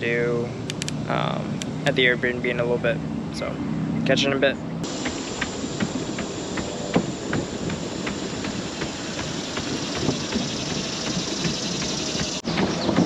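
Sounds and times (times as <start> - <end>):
steady hiss: 4.8 - 12.4
footsteps on wooden boardwalk: 4.8 - 13.0.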